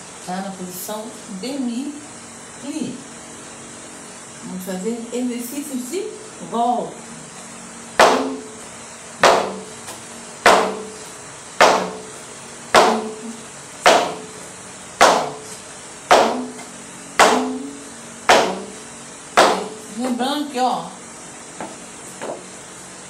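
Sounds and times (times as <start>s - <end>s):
shoe stamps on wooden board: 8.0s - 8.6s, 9.2s - 12.2s, 12.8s - 14.4s, 15.0s - 18.8s, 19.4s - 19.8s.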